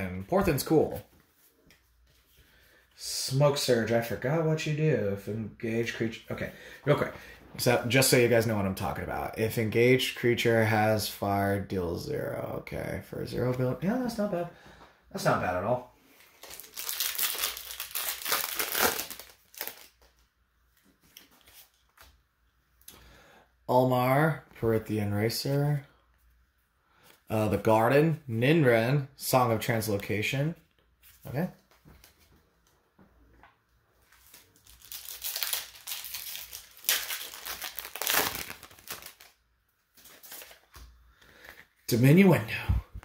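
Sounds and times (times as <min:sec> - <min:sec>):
wrapper crinkling as torn open: 0:16.4 - 0:20.1, 0:34.1 - 0:39.4.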